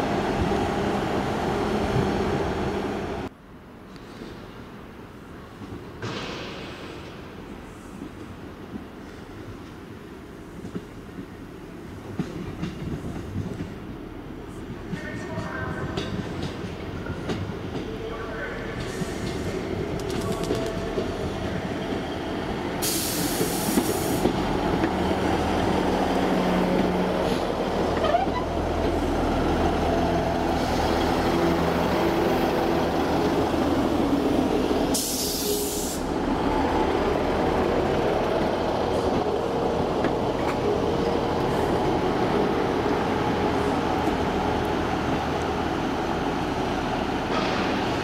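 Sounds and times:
diesel train engine hum: 0.0 - 3.4, 17.6 - 48.0
short air hisses: 22.8 - 24.2, 34.9 - 36.1.

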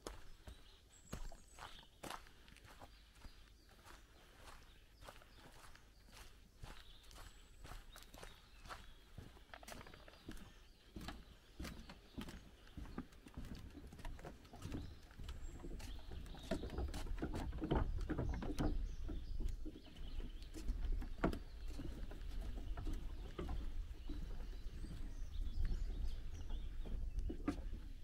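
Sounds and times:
faint birdsong: 0.0 - 28.0
footsteps on wooden boards: 0.0 - 28.0
wind rumble on microphone: 14.7 - 28.0.

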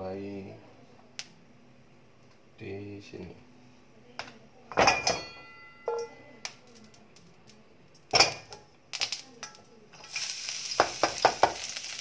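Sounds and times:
wok and spatula clattering: 4.7 - 6.9, 8.0 - 12.0.

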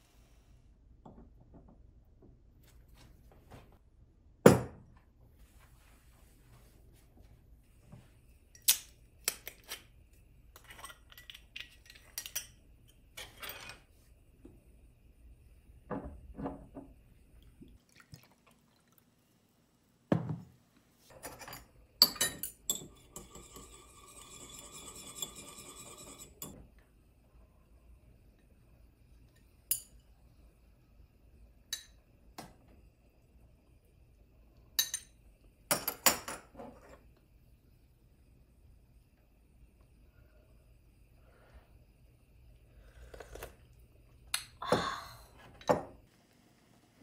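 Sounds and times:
liquid pouring into glass: 17.8 - 19.1.

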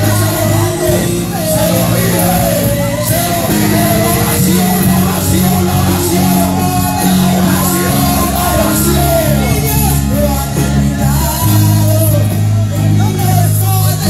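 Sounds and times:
people shouting: 0.0 - 10.4
live band playing loud music: 0.0 - 14.0.

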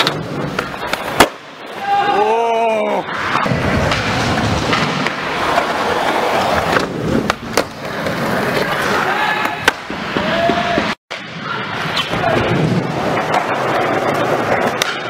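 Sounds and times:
skateboard wheels rolling: 0.0 - 15.0
skateboard clacks: 12.1 - 15.0.

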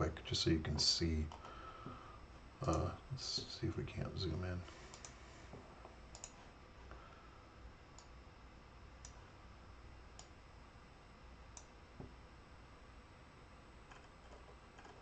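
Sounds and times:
computer mouse clicks: 4.9 - 5.2, 6.1 - 6.4, 9.0 - 9.2, 10.1 - 10.4, 11.5 - 11.8, 13.9 - 15.0.

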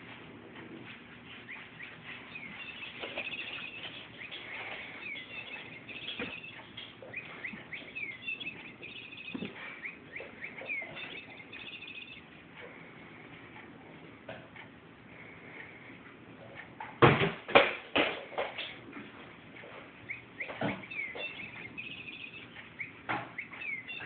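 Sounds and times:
bird-like chirping and trills: 1.3 - 13.2, 19.7 - 24.0.

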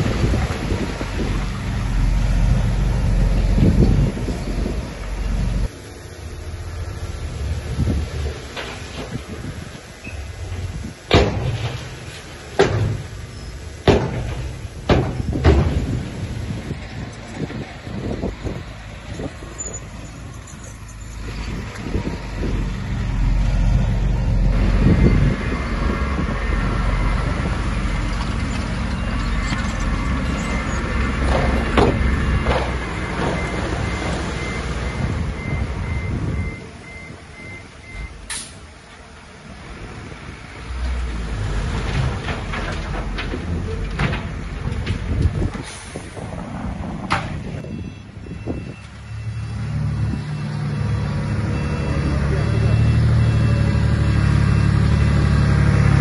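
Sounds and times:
diesel engine working hard: 0.0 - 37.2, 37.8 - 56.0
faint pulsing high beep: 51.3 - 53.8.

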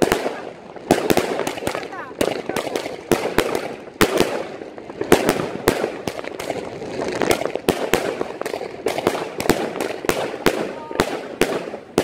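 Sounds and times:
distant firework crackle: 0.0 - 12.0
firework bangs: 0.0 - 12.0.

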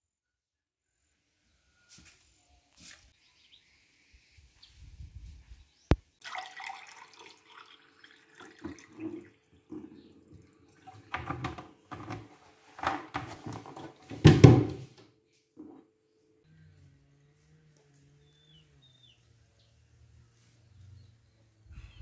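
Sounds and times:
liquid pouring into a glass: 6.2 - 11.4.

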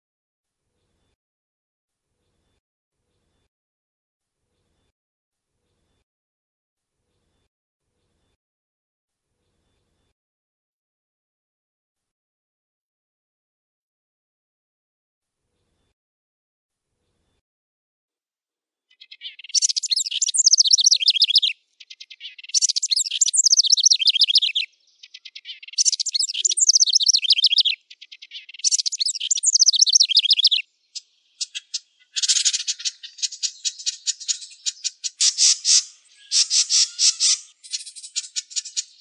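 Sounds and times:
wren singing trills: 18.9 - 39.0.

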